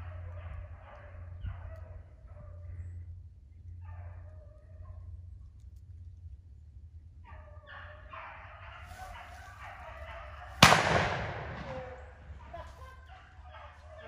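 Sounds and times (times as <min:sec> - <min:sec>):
beagles baying: 0:07.2 - 0:14.0
loud gunshot with echo: 0:10.6 - 0:12.3.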